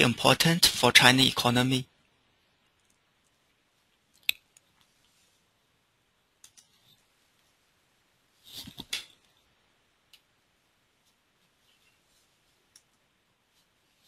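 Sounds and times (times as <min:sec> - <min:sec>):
computer mouse clicks: 0:06.4 - 0:06.8
rustling: 0:10.8 - 0:14.0.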